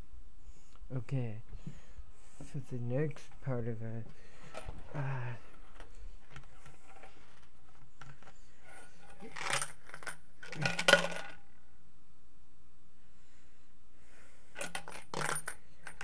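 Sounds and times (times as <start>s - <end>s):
metal coins clinking: 8.6s - 11.4s, 14.6s - 16.0s.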